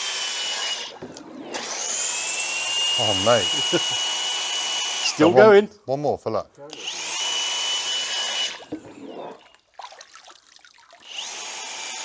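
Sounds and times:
impact wrench whining: 0.0s - 5.3s
water splashing and sloshing: 0.6s - 3.0s, 8.3s - 11.2s.

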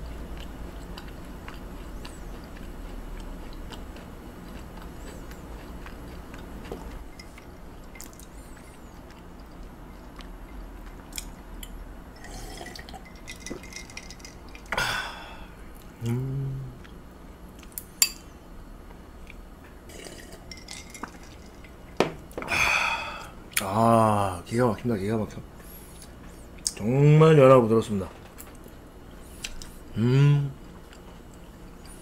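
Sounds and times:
wet chewing mouth sounds: 0.0s - 11.8s
breathy burst: 14.7s - 16.6s, 22.4s - 23.4s
person humming low: 14.8s - 16.8s, 29.9s - 30.6s.

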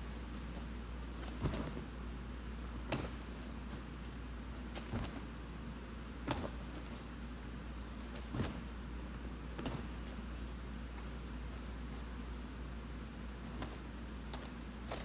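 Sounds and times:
steady low hum: 0.0s - 15.0s
bare feet landing on foam mats: 0.4s - 2.0s, 2.8s - 5.3s, 6.2s - 7.0s, 8.0s - 8.7s, 9.6s - 10.2s.

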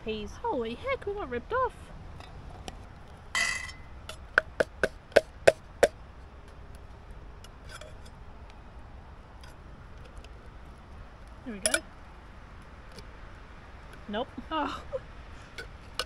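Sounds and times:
tin can knocking on metal rim: 4.1s - 6.0s
tin can scraping: 7.4s - 8.2s.

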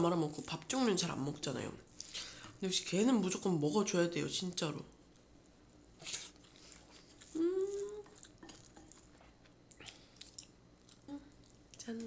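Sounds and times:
person chewing: 6.0s - 11.8s
person humming mm: 7.2s - 8.3s.

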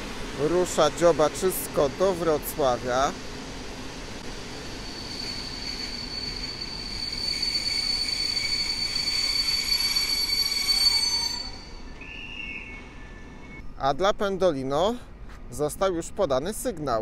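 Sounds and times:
train wheels squealing: 4.6s - 13.6s.

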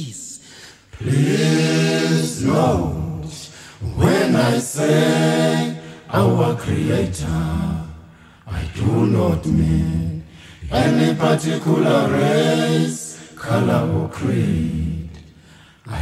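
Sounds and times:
a cappella singing: 0.9s - 16.0s.

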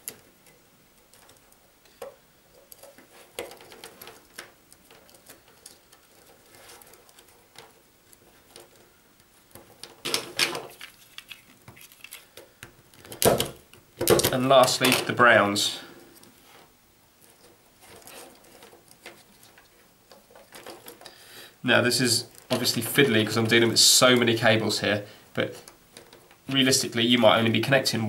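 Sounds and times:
clicking and scraping: 0.0s - 13.3s
telephone wires clicking and rustling: 0.0s - 21.2s, 21.9s - 27.8s.

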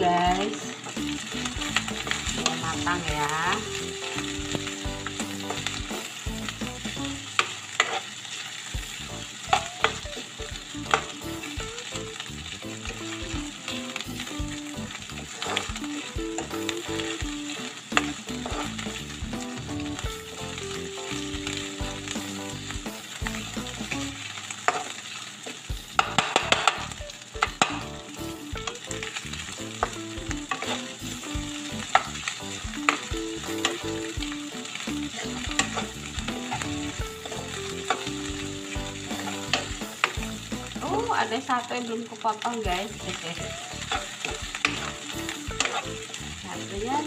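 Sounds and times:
food sizzling in a wok: 0.0s - 47.0s
metal spatula scraping a pan: 7.4s - 8.1s, 15.3s - 15.8s, 18.0s - 19.0s, 29.8s - 31.3s, 35.1s - 40.2s, 42.8s - 46.2s.

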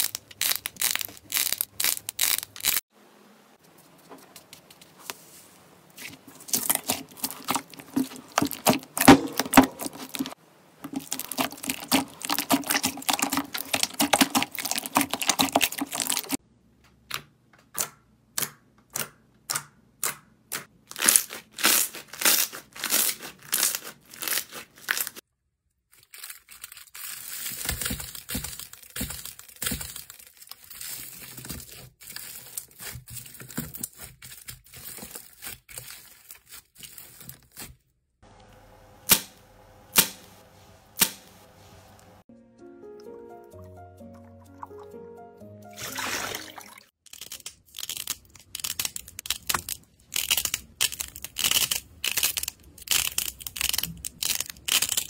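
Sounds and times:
aluminium foil crinkling: 0.0s - 2.8s, 6.0s - 16.4s, 20.9s - 25.2s, 25.9s - 37.9s, 47.0s - 55.0s
sharp slime crackles: 0.0s - 2.8s, 6.4s - 16.4s, 20.9s - 25.2s, 47.0s - 55.0s
hands squishing slime: 6.4s - 16.4s.

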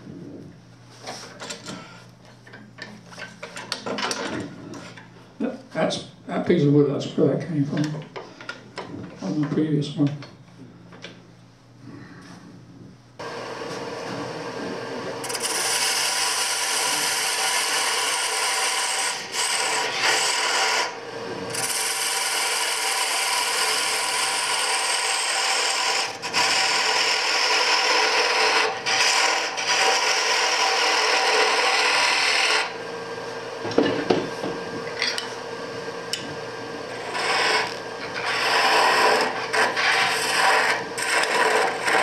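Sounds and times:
turning tool cutting wood: 13.2s - 32.8s, 36.1s - 42.0s
wood lathe spinning: 13.2s - 42.0s.

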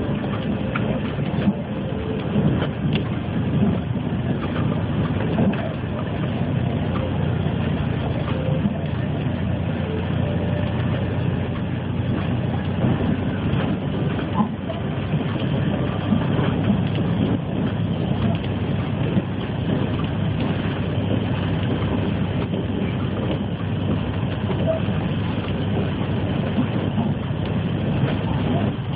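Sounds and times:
bus engine and road noise: 0.0s - 28.9s.

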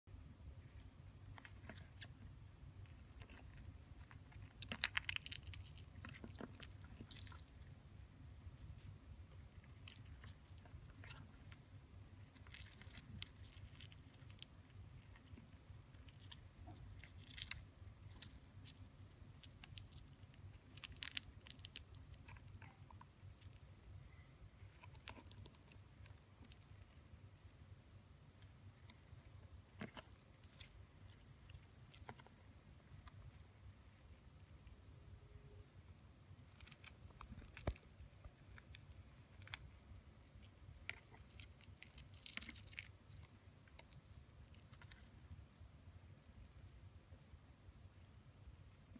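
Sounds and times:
low steady hum: 0.1s - 48.9s
faint clicks and crackles: 0.6s - 23.7s, 35.9s - 47.4s.

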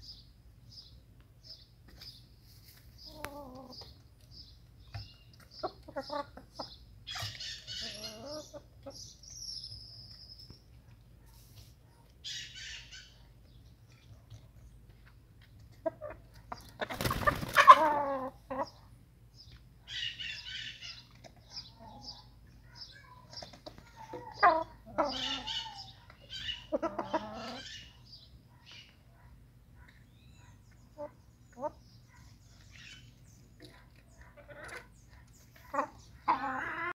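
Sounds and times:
chickens clucking: 1.9s - 9.4s, 10.9s - 36.9s
chicken squawk: 16.8s - 18.8s, 23.9s - 28.0s, 35.6s - 36.9s.

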